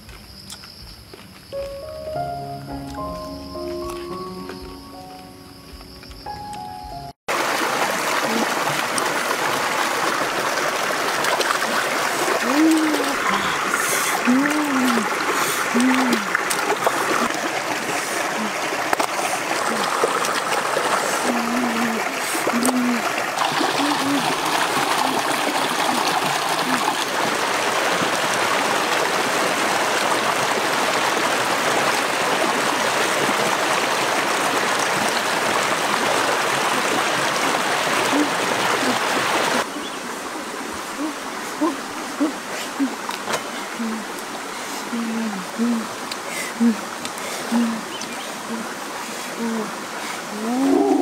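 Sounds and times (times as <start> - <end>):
stream rushing over stones: 7.3 - 51.0
hands splashing in water: 11.2 - 27.2.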